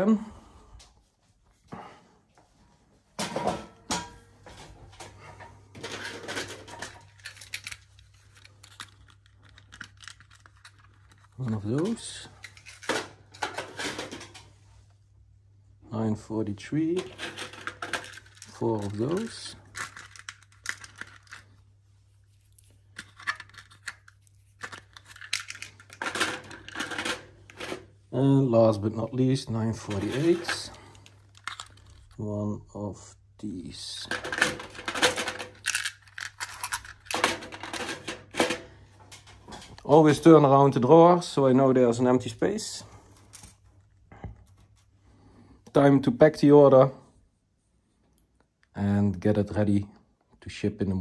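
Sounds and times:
plastic pieces clicking: 5.8s - 14.2s, 17.1s - 21.6s, 22.4s - 27.8s, 30.0s - 32.2s, 34.1s - 38.6s
plastic bricks clattering: 5.8s - 14.4s, 16.9s - 21.6s, 22.6s - 27.9s, 29.8s - 32.2s, 34.1s - 39.9s
plastic bag crinkling: 17.0s - 21.6s, 22.2s - 27.1s, 29.8s - 32.2s.

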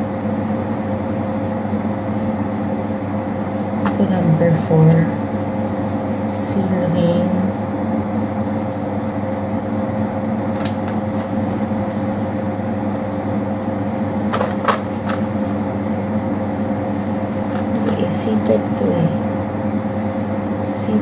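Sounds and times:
air conditioner humming: 0.0s - 21.0s
handling noises: 14.2s - 15.6s, 17.0s - 18.2s.

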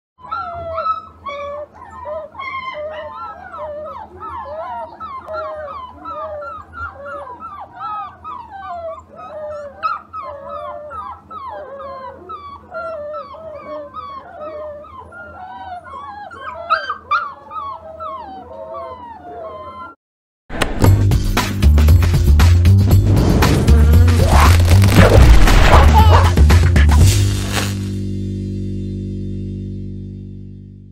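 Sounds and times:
puppies whining and whimpering: 0.2s - 20.0s, 24.2s - 26.3s.

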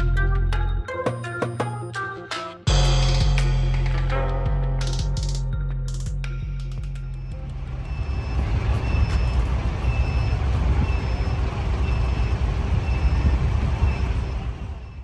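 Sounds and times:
traffic rumble: 6.0s - 15.0s.

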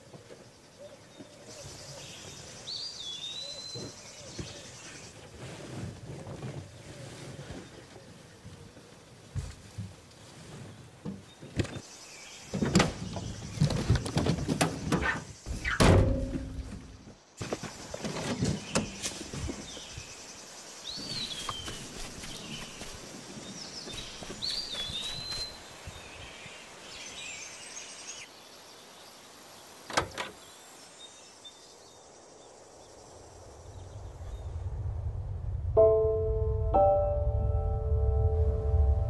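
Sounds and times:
birds chirping: 11.2s - 29.3s.

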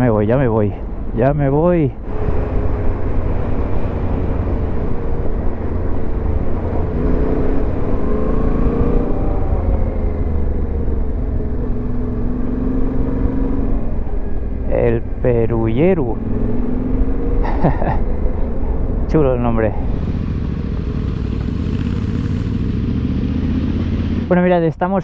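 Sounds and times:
wind and road noise: 0.0s - 25.0s
motorcycle engine running: 16.1s - 24.3s.

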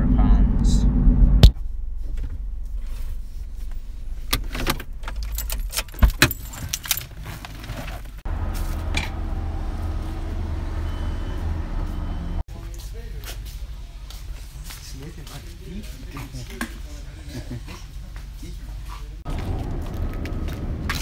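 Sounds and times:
low rumble: 0.0s - 5.5s
car keys jangling: 4.3s - 8.0s.

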